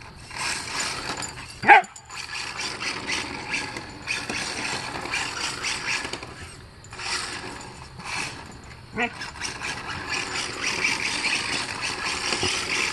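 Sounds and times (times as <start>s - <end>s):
dog yipping: 1.6s - 2.1s.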